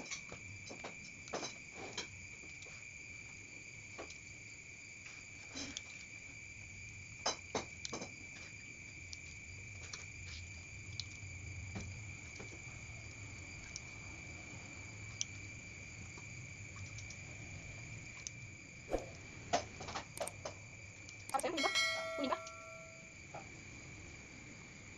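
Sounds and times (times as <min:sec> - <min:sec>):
cricket trilling: 0:00.0 - 0:24.9
chopsticks tapping steel bowl: 0:21.4 - 0:23.0.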